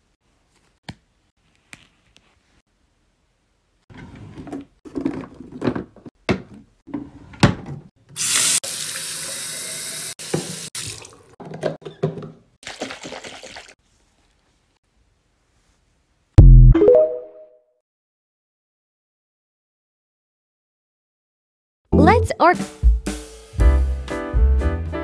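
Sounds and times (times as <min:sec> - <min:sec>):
tap water running: 0:08.1 - 0:11.4, 0:12.6 - 0:13.8.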